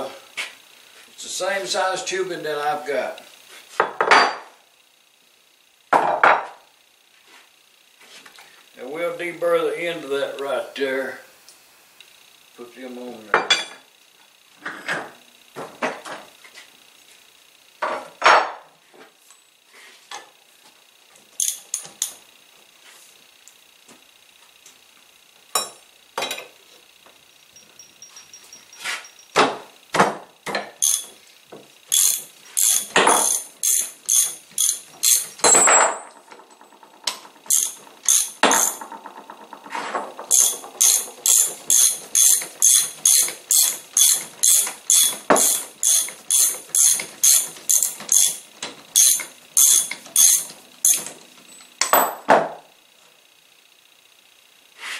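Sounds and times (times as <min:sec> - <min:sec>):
ratchet wrench clicking: 0:21.4 - 0:22.3, 0:30.6 - 0:31.2, 0:31.8 - 0:52.0
metal clicks and knocks: 0:32.0 - 0:51.2.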